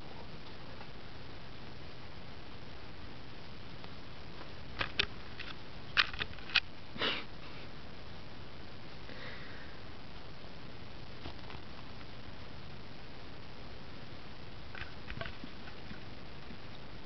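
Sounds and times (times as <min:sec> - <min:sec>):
faint hiss: 0:06.6 - 0:17.0.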